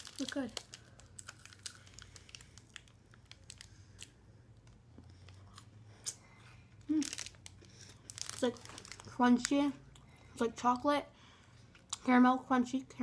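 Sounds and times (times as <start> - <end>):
wrapper crinkling: 0.0 - 4.1, 6.8 - 9.6
chocolate bar crunching: 0.0 - 6.2, 6.8 - 9.6.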